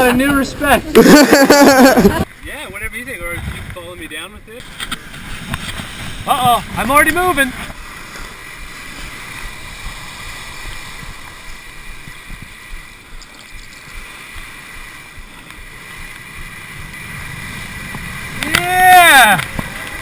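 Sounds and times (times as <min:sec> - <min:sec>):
wind rumbling on microphone: 0:01.7 - 0:20.0.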